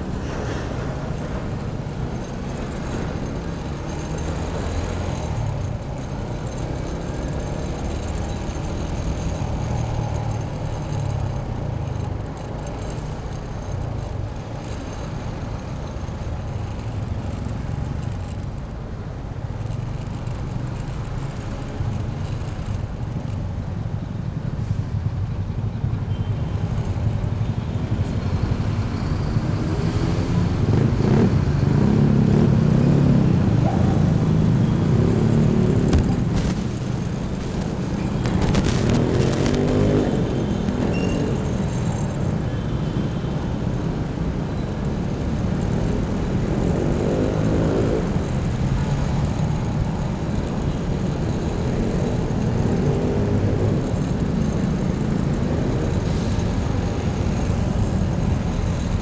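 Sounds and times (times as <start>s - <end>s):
motorcycle engine at low speed: 0.0s - 59.0s
rumble of trucks and cars: 0.0s - 59.0s.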